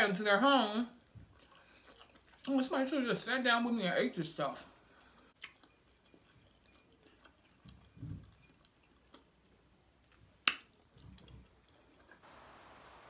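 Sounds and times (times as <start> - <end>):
soft chewing: 1.0 - 2.7, 4.8 - 12.2.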